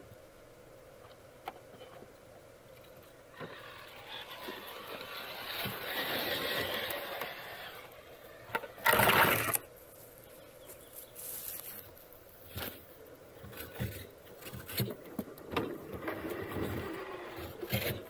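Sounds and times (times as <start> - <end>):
electric motor and gears whirring: 3.3 - 9.7.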